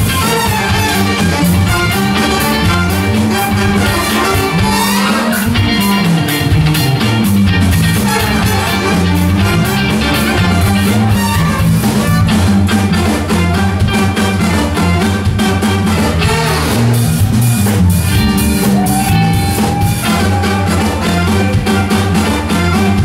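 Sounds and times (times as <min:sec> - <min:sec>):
bass line: 0:00.0 - 0:23.0
drum kit: 0:00.0 - 0:23.0
guitar: 0:00.0 - 0:23.0
saxophone: 0:00.0 - 0:23.0
trombone: 0:00.0 - 0:23.0.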